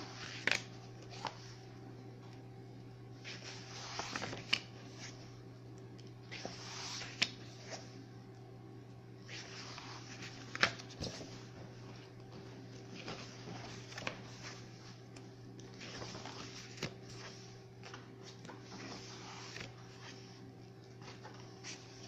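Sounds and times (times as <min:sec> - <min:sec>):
book pages turning: 0:00.0 - 0:01.6, 0:03.2 - 0:05.3, 0:06.2 - 0:08.0, 0:09.2 - 0:22.0.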